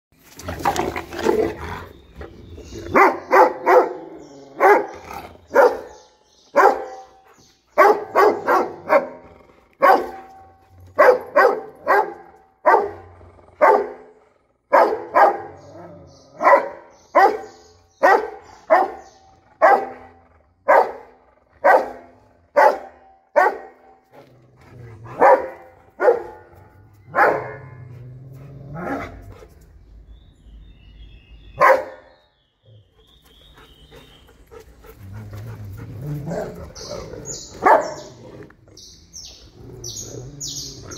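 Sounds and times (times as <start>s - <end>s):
dogs growling scuffle: 24.1s - 25.3s, 34.5s - 38.8s.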